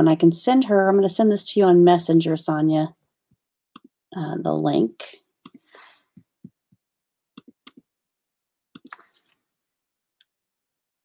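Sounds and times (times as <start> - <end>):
computer mouse and keyboard clicks: 8.8 - 9.4.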